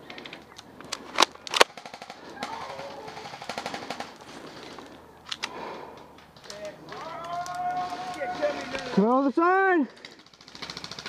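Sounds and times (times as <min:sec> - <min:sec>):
airsoft gunfire: 0:01.5 - 0:04.2.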